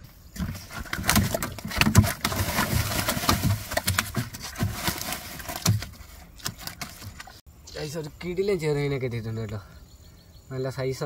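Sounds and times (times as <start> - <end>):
fish thrashing and slapping: 0.3 - 7.4.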